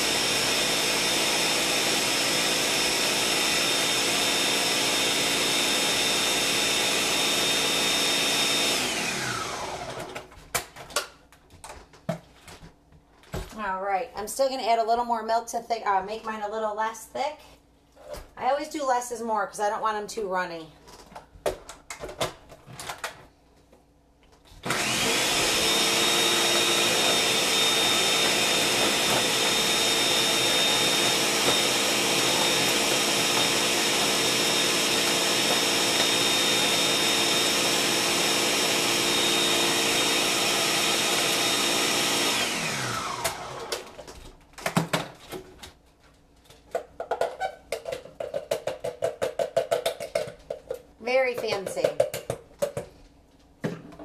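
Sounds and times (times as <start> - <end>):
electric blender running: 0.0 - 10.3, 24.6 - 44.2.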